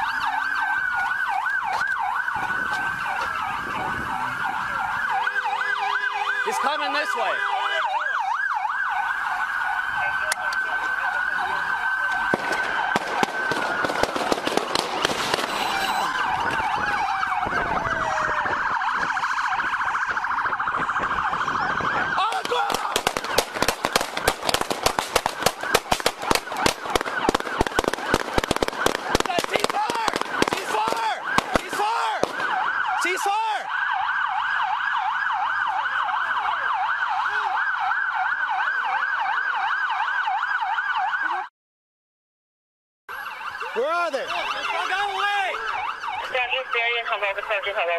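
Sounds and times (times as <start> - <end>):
police sirens wailing: 0.0 - 41.5, 43.1 - 47.9
rapid sharp impacts: 22.3 - 32.6.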